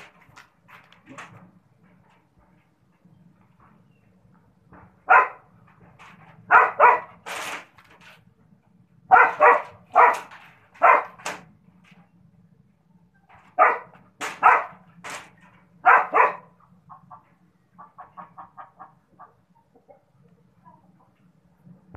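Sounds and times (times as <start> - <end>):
dog barking: 5.0 - 5.5, 6.5 - 7.2, 9.1 - 11.2, 13.6 - 14.8, 15.8 - 16.6.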